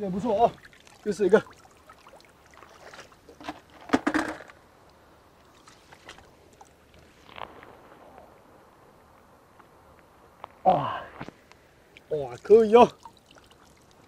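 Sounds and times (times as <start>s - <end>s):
seawater splashing in tide pool: 0.0s - 8.1s, 11.7s - 14.0s.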